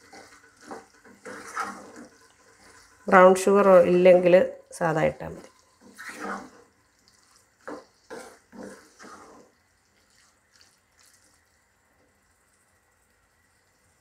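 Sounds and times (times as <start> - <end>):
spatula scraping thick pickle: 0.0 - 3.8, 5.4 - 11.2.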